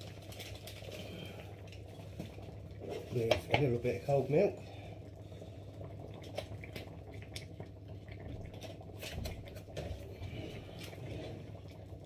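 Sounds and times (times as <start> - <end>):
steady low hum: 0.4 - 12.0
light clicks and wet ticks: 6.1 - 9.6.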